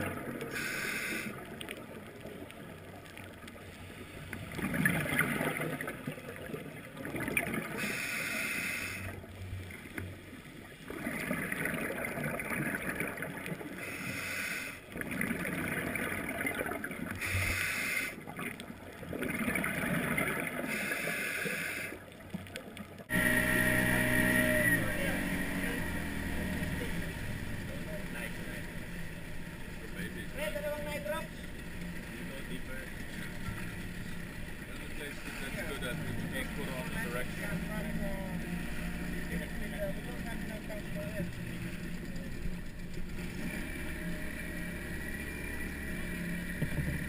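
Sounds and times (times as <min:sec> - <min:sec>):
rushing water: 0:00.0 - 0:47.0
diver breathing through regulator: 0:00.5 - 0:01.4, 0:07.8 - 0:09.2, 0:13.8 - 0:14.9, 0:17.2 - 0:18.2, 0:20.6 - 0:22.0
boat engine running: 0:23.1 - 0:47.0.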